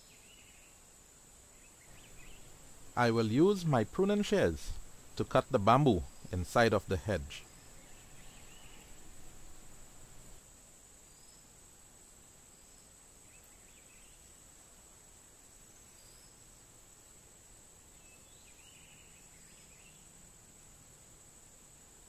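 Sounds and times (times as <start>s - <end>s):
faint chirps: 1.5s - 10.4s.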